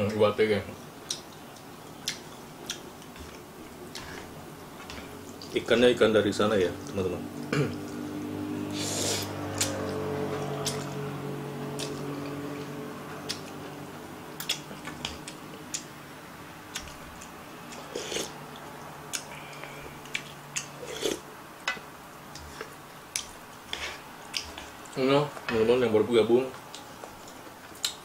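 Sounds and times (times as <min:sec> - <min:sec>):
person chewing and slurping noodles: 0:16.8 - 0:21.2.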